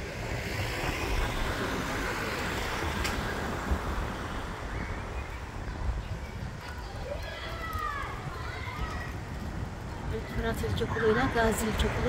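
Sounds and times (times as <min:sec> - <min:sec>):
car passing: 0:00.0 - 0:06.3
low traffic rumble: 0:00.0 - 0:12.0.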